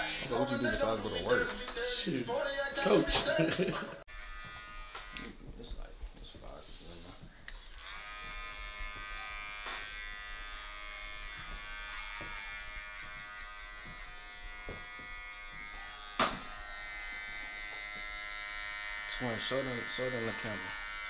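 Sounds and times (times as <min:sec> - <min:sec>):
hair clippers buzzing: 0:04.1 - 0:05.5, 0:07.5 - 0:21.0.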